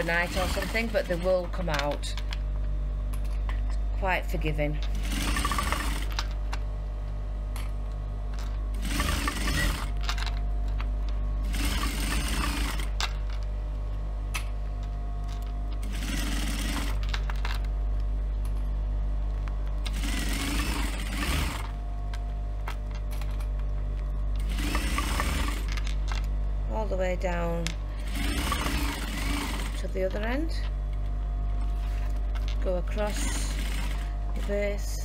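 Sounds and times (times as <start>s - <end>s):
sewing machine stitching: 0.0s - 1.6s, 4.9s - 6.2s, 8.8s - 10.0s, 11.4s - 13.0s, 15.8s - 17.1s, 19.9s - 21.8s, 24.4s - 25.8s, 28.0s - 30.0s, 33.0s - 34.8s
motor hum: 0.0s - 35.0s.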